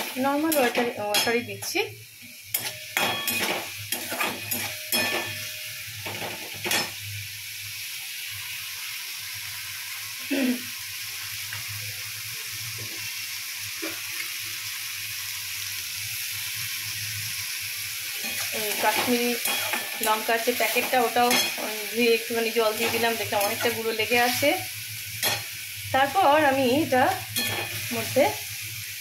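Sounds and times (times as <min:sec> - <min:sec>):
vegetables sizzling in a pan: 0:00.0 - 0:29.0
metal spatula scraping a pan: 0:02.5 - 0:07.0, 0:18.2 - 0:22.0, 0:22.6 - 0:24.6, 0:27.4 - 0:28.1.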